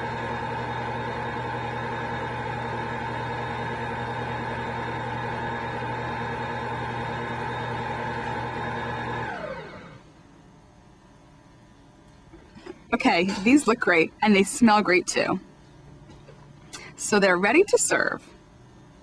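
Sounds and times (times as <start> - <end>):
stand mixer motor whining: 0.0 - 10.0.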